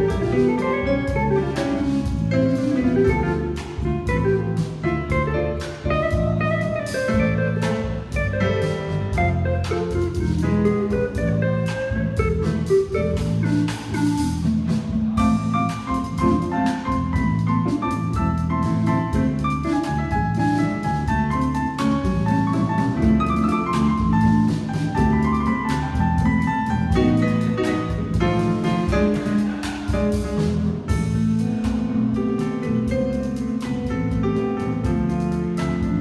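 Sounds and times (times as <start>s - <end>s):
drums keeping busy beat: 0.0s - 36.0s
latin jazz band playing: 0.0s - 36.0s.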